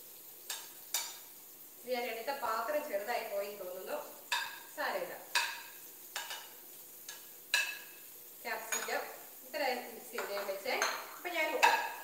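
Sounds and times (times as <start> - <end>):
metal spoon clinking on ceramic: 8.7 - 8.9, 10.2 - 12.0.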